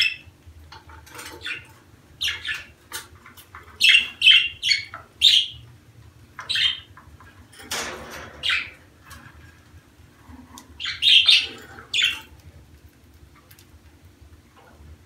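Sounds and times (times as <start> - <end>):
budgerigars chirping and squawking: 0.0 - 0.3, 1.0 - 5.7, 6.4 - 7.0, 8.0 - 8.9, 10.5 - 12.4.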